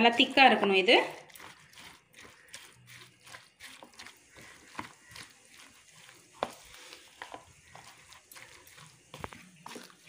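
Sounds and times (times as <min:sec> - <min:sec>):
spoon stirring wet batter: 0:00.0 - 0:10.0.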